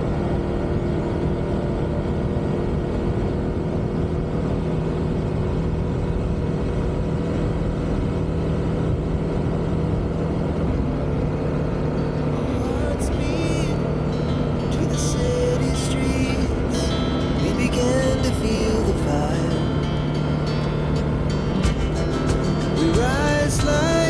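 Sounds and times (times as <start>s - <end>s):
road noise: 0.0s - 24.0s
scooter engine running: 0.0s - 24.0s.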